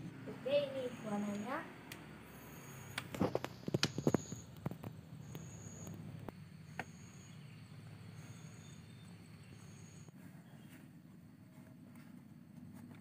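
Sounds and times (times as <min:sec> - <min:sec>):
high insect trill: 0:00.9 - 0:10.1.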